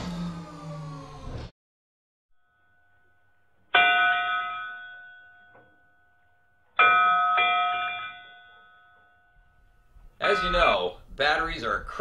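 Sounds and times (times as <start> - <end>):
bell ringing: 2.4 - 11.0.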